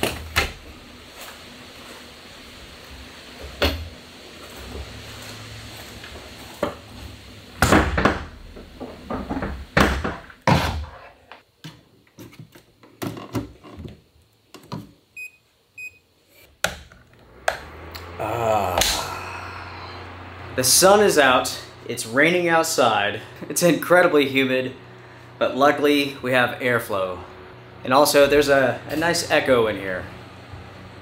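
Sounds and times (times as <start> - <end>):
fan running hum: 0.0 - 10.4, 16.6 - 31.0.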